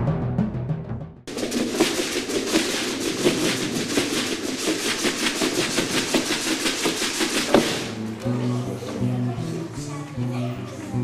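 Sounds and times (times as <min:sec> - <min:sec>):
plastic bottles rattling: 0:01.3 - 0:08.0.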